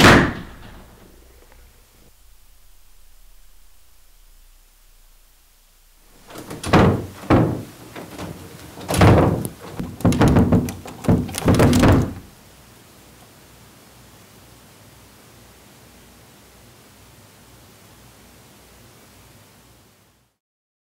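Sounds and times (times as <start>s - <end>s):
heavy thuds and bangs: 0.0s - 1.6s, 6.1s - 12.3s.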